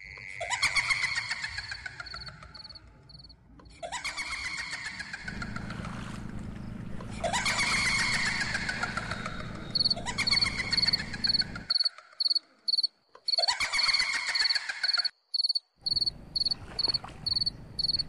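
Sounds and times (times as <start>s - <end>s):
cricket chirping: 2.1s - 3.3s, 9.5s - 13.4s, 14.4s - 18.0s
low rumble: 5.3s - 11.7s.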